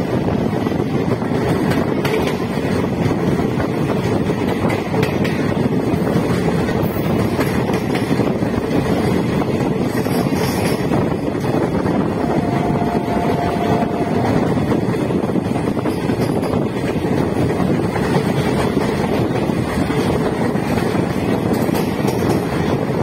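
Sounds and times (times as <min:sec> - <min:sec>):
train running gear rumble: 0:00.0 - 0:23.0
wind buffeting microphone: 0:00.0 - 0:23.0
faint high tone: 0:12.1 - 0:14.7.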